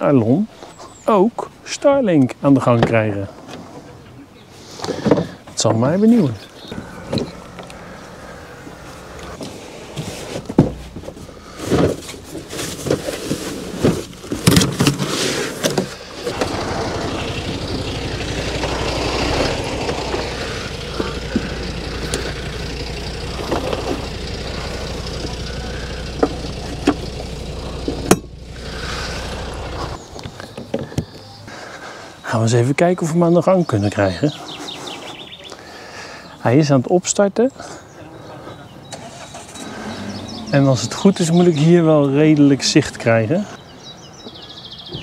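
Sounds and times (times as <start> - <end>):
steady rumbling noise: 6.7 - 14.4, 15.9 - 30.3
knocks and clatter of unpacking: 9.4 - 16.0.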